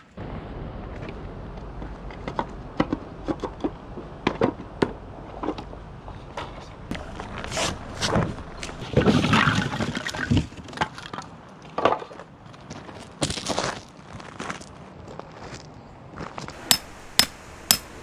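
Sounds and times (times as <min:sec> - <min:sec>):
firewood logs clattering: 0:06.9 - 0:11.0.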